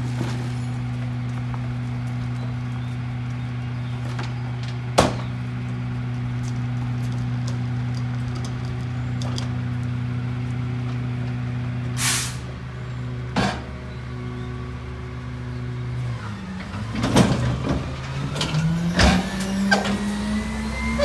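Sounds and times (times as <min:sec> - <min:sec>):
diesel engine running: 0:00.0 - 0:21.0
brief hiss: 0:12.0 - 0:12.4.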